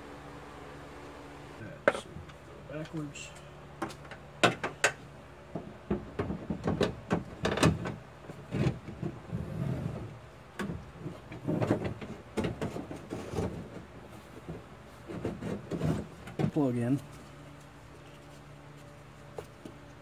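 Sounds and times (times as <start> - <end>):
metal clanks knocks and scrapes: 5.9 - 16.7.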